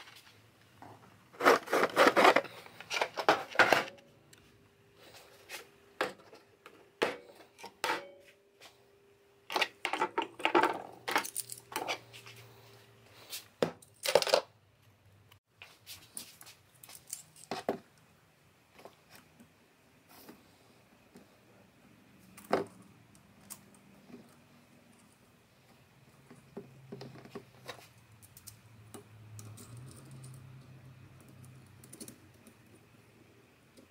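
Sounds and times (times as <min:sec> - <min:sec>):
tools clattering on a workbench: 0:00.0 - 0:04.0, 0:09.5 - 0:12.4, 0:13.6 - 0:14.5.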